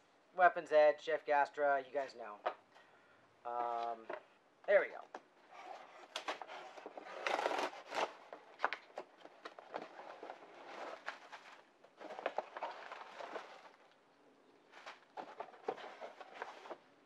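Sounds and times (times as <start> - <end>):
cardboard and bubble wrap rustling: 5.5 - 14.0, 14.6 - 17.0
knife cutting cardboard box: 5.6 - 8.8.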